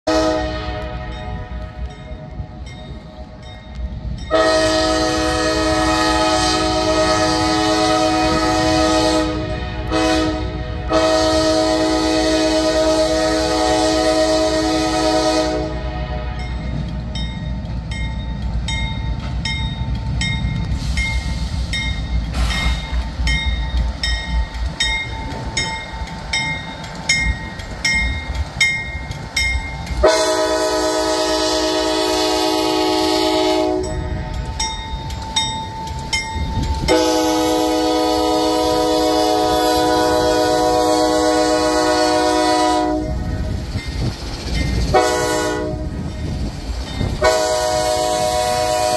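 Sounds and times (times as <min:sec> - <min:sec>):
train air horn blowing: 0:00.0 - 0:01.9, 0:04.3 - 0:16.9, 0:30.0 - 0:34.4, 0:36.8 - 0:43.5, 0:44.9 - 0:46.2, 0:47.2 - 0:48.9
locomotive engine rumble: 0:00.1 - 0:48.9
locomotive bell ringing: 0:00.7 - 0:05.4, 0:16.3 - 0:48.7.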